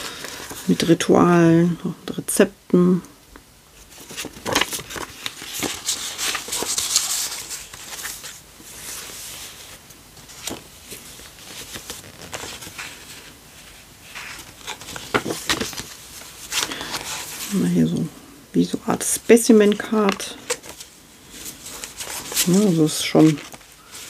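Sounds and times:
paper rustling: 3.8s - 17.6s, 19.5s - 24.0s.

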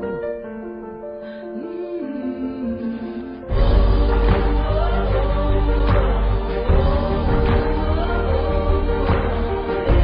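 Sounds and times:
background music with strong bass: 3.5s - 10.0s.

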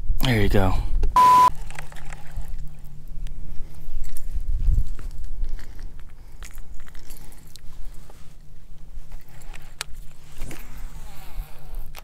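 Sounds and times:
steady low rumble: 2.5s - 12.0s.

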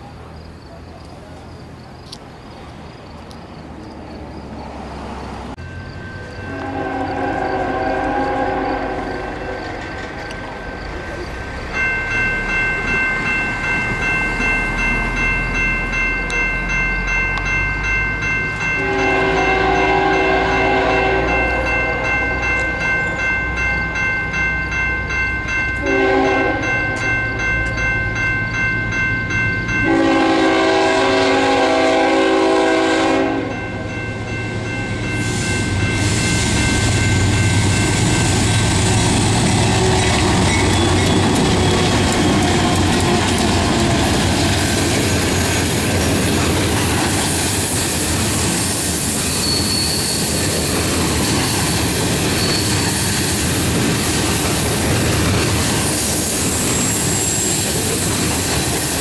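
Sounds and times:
train rumble: 0.0s - 59.0s
crossing warning bell ringing: 5.5s - 59.0s
train horn blasts: 6.3s - 10.3s, 18.8s - 22.8s, 25.8s - 27.1s, 29.8s - 33.8s, 38.6s - 44.5s.

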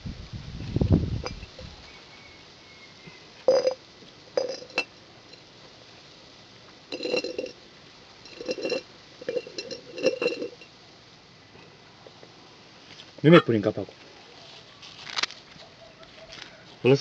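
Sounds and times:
glass jar clinking on concrete: 3.5s - 3.8s, 4.4s - 5.4s, 6.9s - 7.6s, 8.2s - 10.7s.

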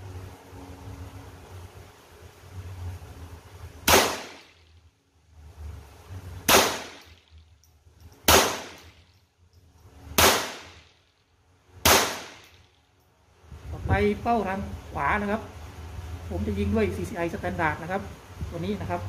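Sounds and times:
rifle shots: 3.8s - 4.6s, 6.5s - 7.1s, 8.2s - 9.0s, 10.2s - 10.9s, 11.8s - 12.6s.

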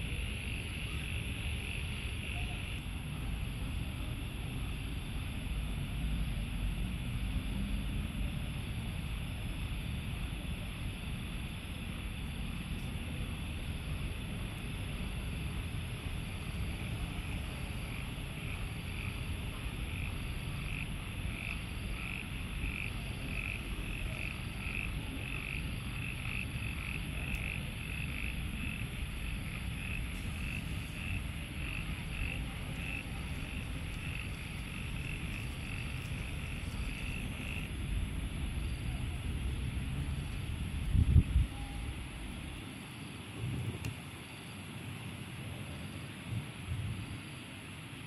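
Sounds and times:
steady low rumble: 0.0s - 44.0s
frog croaking: 17.6s - 42.4s.

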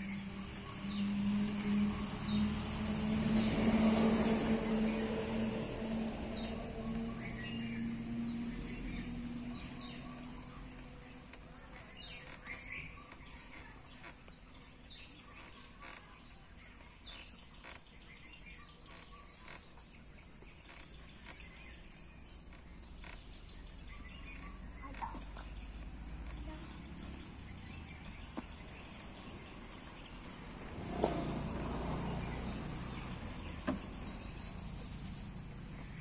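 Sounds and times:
bird chirps: 6.0s - 30.4s.

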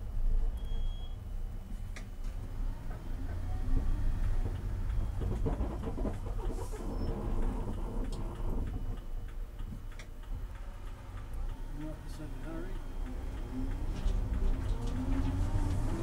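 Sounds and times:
road rumble: 1.2s - 16.0s.

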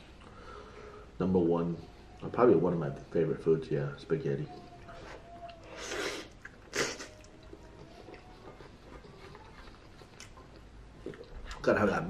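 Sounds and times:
soft chewing: 4.5s - 11.8s.

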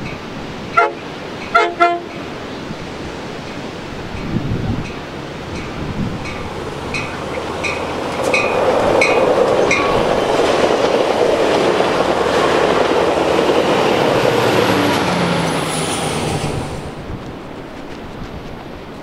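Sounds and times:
diesel locomotive engine drone: 0.0s - 19.0s
train cars rushing past: 0.0s - 19.0s.

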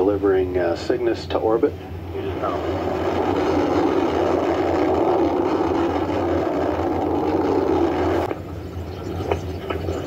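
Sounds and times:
rocket exhaust roar: 2.2s - 8.4s.

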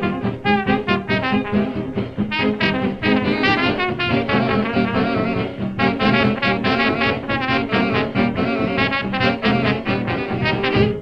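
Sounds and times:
lively background music: 0.0s - 11.0s.

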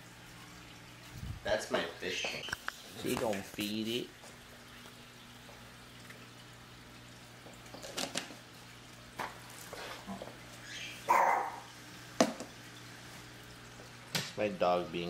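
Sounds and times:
small dog barking: 11.0s - 11.7s.

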